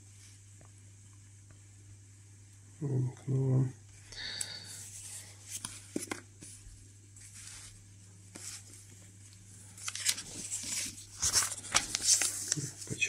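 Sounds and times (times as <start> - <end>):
faint low hum: 0.0 - 13.0
paper pages rustling: 4.9 - 6.6, 7.2 - 13.0.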